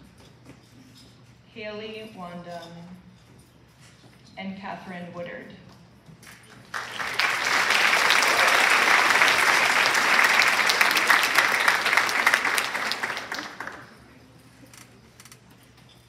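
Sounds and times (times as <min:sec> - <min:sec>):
audience applause: 0:06.7 - 0:14.0.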